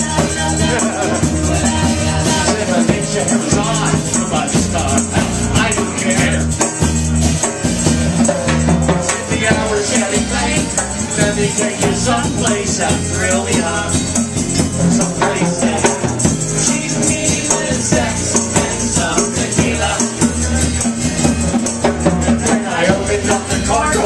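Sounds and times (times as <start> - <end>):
person singing: 0.0 - 6.6, 9.0 - 14.1
drum kit: 0.0 - 24.0
electric bass: 0.0 - 24.0
strummed acoustic guitar: 0.0 - 24.0
tambourine jingling: 0.0 - 24.0.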